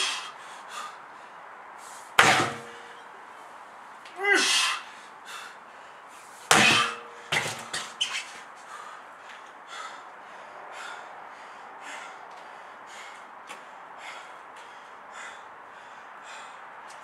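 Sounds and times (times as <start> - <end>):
sledgehammer striking tyre: 2.2 - 3.0, 6.5 - 8.0.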